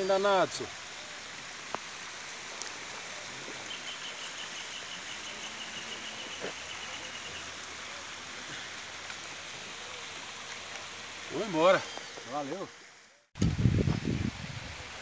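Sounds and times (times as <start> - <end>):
outdoor hiss of water or wind: 0.0 - 15.0.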